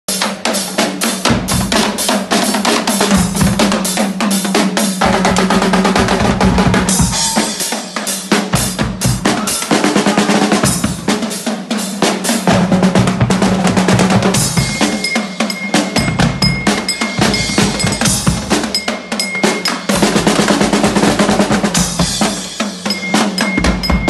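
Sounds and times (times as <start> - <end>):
marching drum band: 0.1 - 24.0
crashing cymbals: 14.3 - 24.0.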